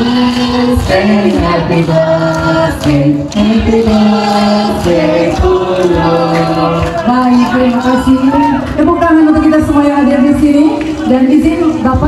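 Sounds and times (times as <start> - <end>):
group singing in chorus: 0.0 - 8.5
hands clapping in time: 0.0 - 8.9.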